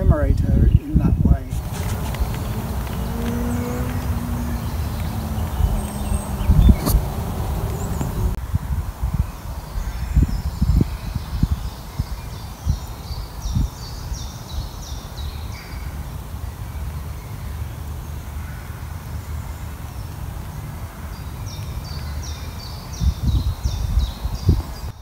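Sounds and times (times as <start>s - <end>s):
songbird singing: 0.0s - 8.4s, 9.0s - 25.0s
wind buffeting microphone: 0.0s - 15.4s, 21.8s - 25.0s.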